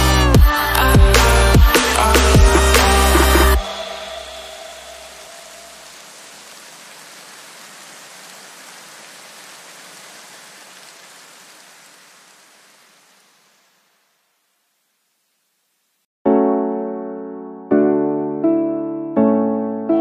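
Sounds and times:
steady static hiss: 3.7s - 16.1s.

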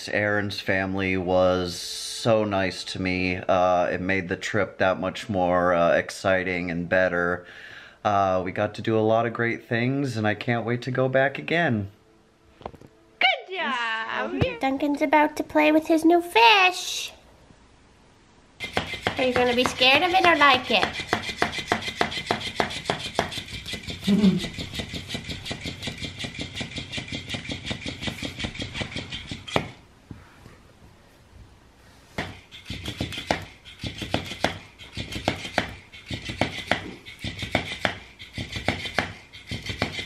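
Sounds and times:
toy motor whirring: 18.6s - 29.7s, 32.4s - 40.0s.

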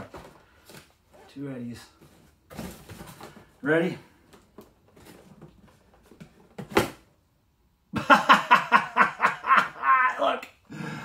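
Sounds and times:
cardboard packaging rustling: 2.0s - 3.6s, 4.2s - 6.8s
man laughing loudly: 7.9s - 10.3s.

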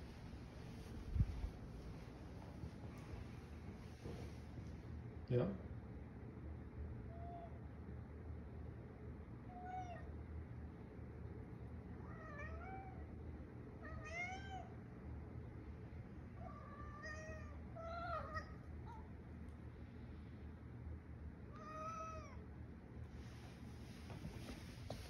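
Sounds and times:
cat meowing: 9.5s - 10.1s, 12.0s - 13.1s, 13.8s - 14.8s, 16.4s - 19.1s, 21.5s - 22.4s.

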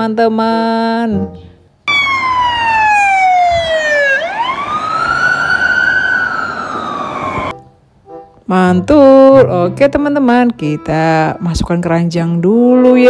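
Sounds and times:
police siren wailing: 1.9s - 7.5s.

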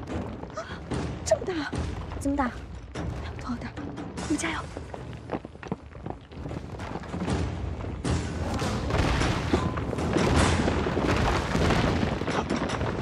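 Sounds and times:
background music: 0.0s - 5.9s, 6.7s - 13.0s
heavy booms and crashing impacts: 8.0s - 13.0s.

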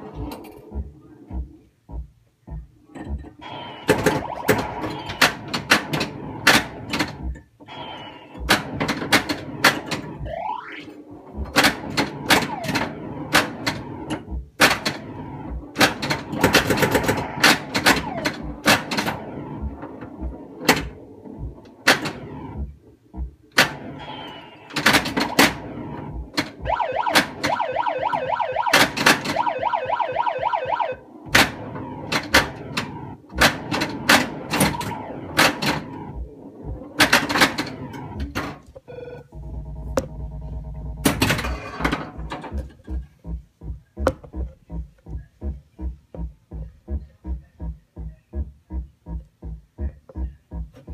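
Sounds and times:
pinball flipper and bumper clacks: 8.4s - 10.2s, 11.4s - 15.0s, 15.7s - 22.3s, 23.5s - 25.7s, 26.3s - 27.6s, 28.7s - 29.4s, 31.3s - 36.1s, 36.7s - 38.7s, 41.0s - 43.1s
rapid pulsing tone: 10.1s - 11.5s, 25.6s - 28.8s
electronic sound effects: 10.2s - 11.5s.

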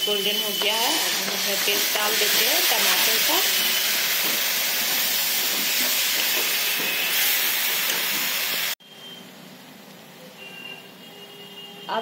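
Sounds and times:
masala sizzling in hot oil: 0.0s - 8.8s
metal spatula stirring: 0.5s - 7.1s.

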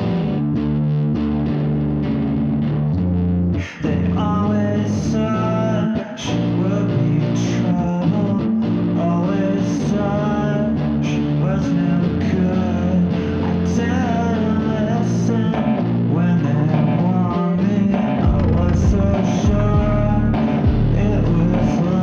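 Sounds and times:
guitar: 0.0s - 22.0s
person singing: 3.6s - 22.0s
sustained low notes: 15.2s - 22.0s.

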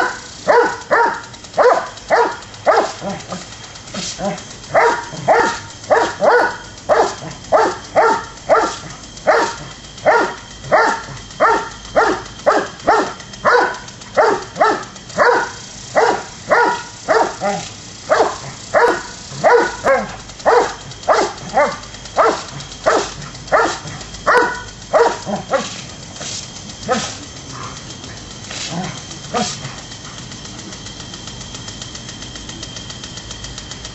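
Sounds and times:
dog barking: 0.0s - 3.2s, 4.2s - 25.7s, 29.3s - 29.6s
lawn sprinkler spraying: 0.0s - 33.9s.

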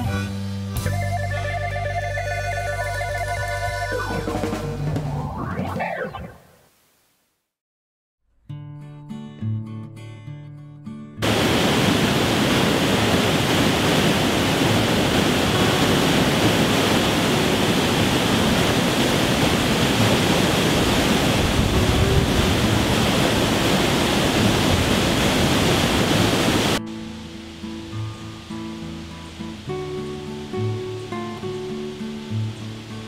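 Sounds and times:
water rushing over rocks: 11.2s - 26.8s.

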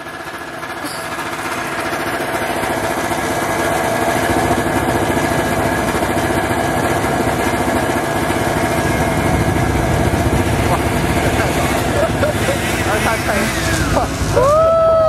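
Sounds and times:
snowmobile engine running: 0.0s - 15.0s.

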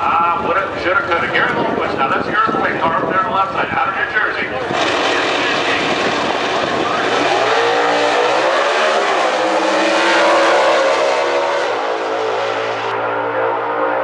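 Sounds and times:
drag cars racing at full throttle: 0.0s - 14.0s.

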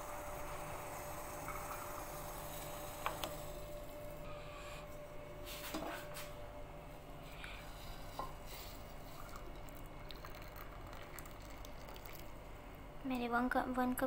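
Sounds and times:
coffee pouring: 0.0s - 3.8s, 8.2s - 12.5s.

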